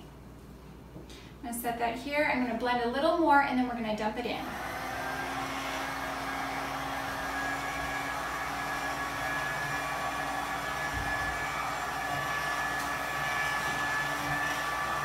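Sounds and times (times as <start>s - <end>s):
immersion blender motor humming: 4.4s - 15.0s.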